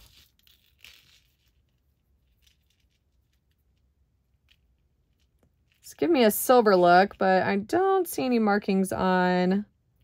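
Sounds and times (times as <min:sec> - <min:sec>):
jewelry clicking and rustling: 0:00.0 - 0:05.9.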